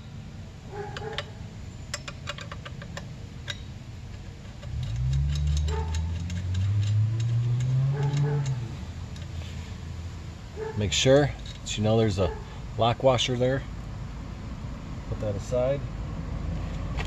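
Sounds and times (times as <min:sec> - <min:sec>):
metal wrench clicking: 0:00.9 - 0:09.4, 0:11.1 - 0:11.8.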